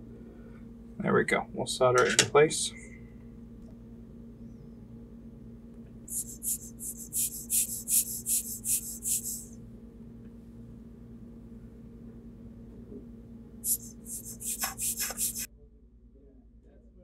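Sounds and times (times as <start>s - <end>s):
low electrical hum: 0.0s - 17.0s
short scratchy hissing strokes: 6.1s - 9.6s, 13.6s - 15.5s.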